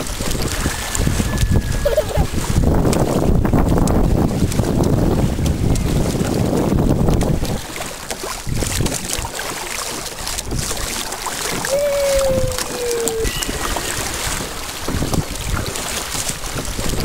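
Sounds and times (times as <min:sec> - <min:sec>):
water splashing against canoe hull: 0:00.0 - 0:17.0
wind buffeting microphone: 0:00.0 - 0:17.0
held falling tone: 0:11.7 - 0:14.9.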